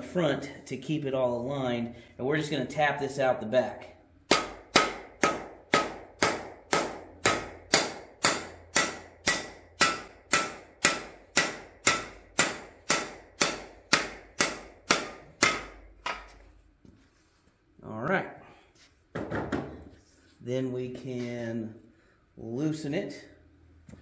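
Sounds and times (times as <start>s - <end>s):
mallet striking metal bar: 4.3s - 16.2s.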